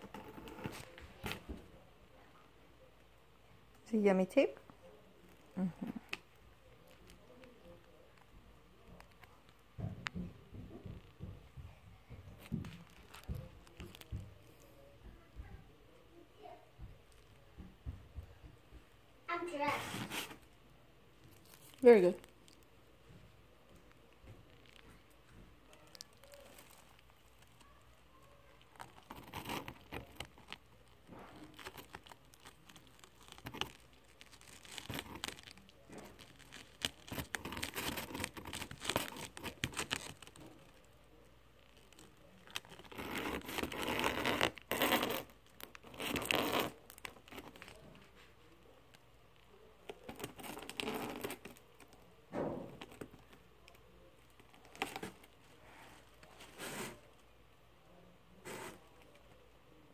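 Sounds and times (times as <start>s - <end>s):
cat rustling plastic packing: 28.5s - 40.9s.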